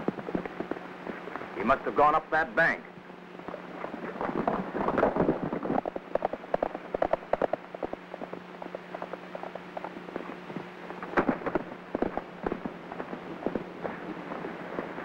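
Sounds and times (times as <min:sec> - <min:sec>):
low soundtrack hum: 0:00.0 - 0:15.0
horse hooves clattering: 0:03.4 - 0:15.0.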